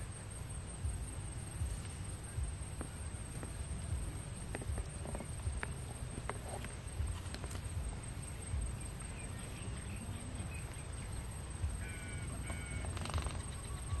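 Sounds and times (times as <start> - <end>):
faint bird chirps: 6.8 - 14.0
bird calling: 8.6 - 14.0.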